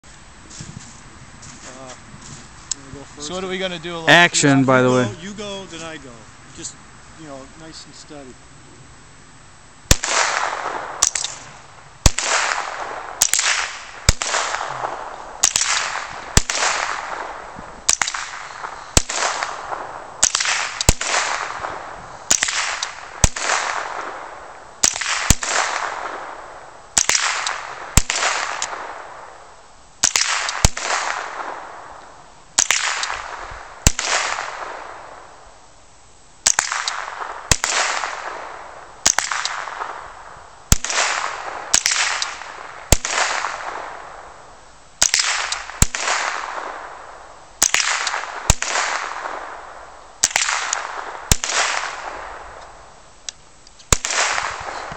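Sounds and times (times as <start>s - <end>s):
rifle shots with echo: 9.9s - 11.4s, 12.0s - 29.4s, 30.0s - 32.0s, 32.6s - 35.3s, 36.4s - 40.1s, 40.7s - 44.4s, 45.0s - 52.6s, 53.9s - 54.9s.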